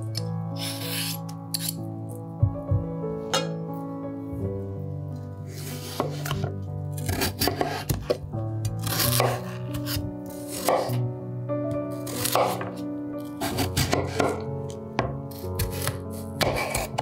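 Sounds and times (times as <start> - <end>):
background music sustained notes: 0.0 - 17.0
knife cutting on cutting board: 0.6 - 1.8, 5.6 - 8.2, 8.8 - 11.0, 12.1 - 12.8, 15.6 - 17.0.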